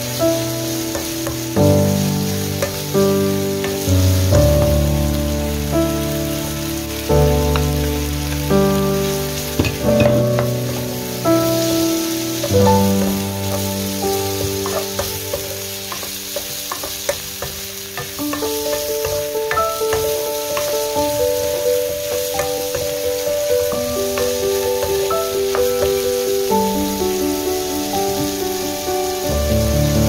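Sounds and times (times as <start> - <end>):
food sizzling in a wok: 0.0 - 30.0
slow background music: 0.0 - 30.0
wooden spatula scraping a pan: 7.5 - 20.9.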